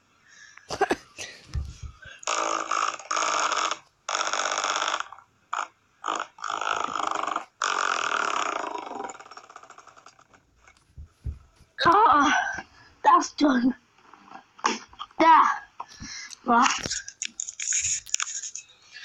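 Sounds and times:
low thumps: 1.5s - 2.1s, 10.8s - 12.1s
fan blades striking a hand: 10.8s - 11.8s.

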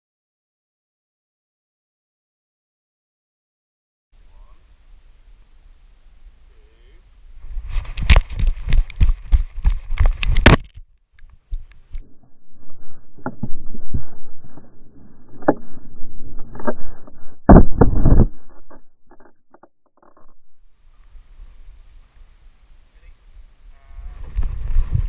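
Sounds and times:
muffled rubbing against camera: 7.4s - 21.6s, 24.0s - 25.0s
camera knocking and rattling: 7.7s - 12.0s, 13.2s - 14.7s, 16.4s - 20.6s.

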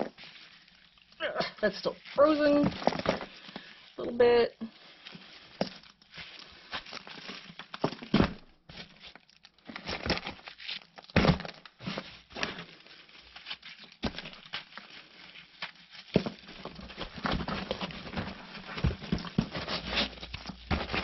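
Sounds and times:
hands crumpling damp bedding: 0.0s - 21.0s
scrapes: 11.8s - 21.0s.

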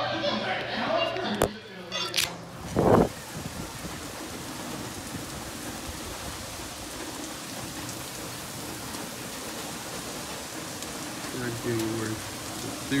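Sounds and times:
heavy rain on pavement: 2.5s - 13.0s
raindrops ticking: 3.1s - 13.0s.

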